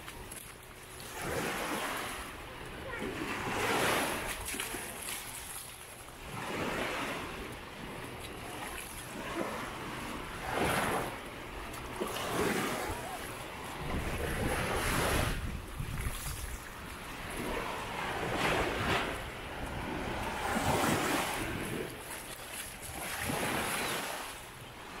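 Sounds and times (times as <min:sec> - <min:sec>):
small waves breaking on beach: 0:00.0 - 0:25.0
wind buffeting microphone: 0:12.2 - 0:22.0.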